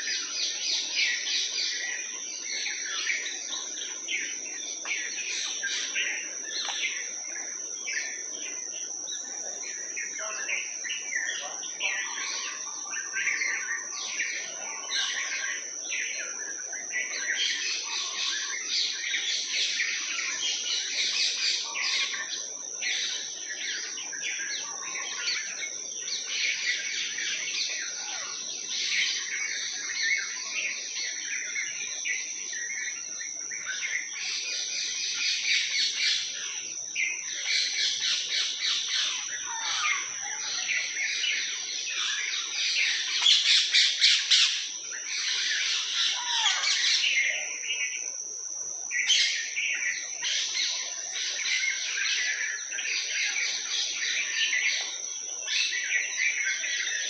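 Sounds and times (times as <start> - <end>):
birds chirping chorus: 0.0 - 57.0.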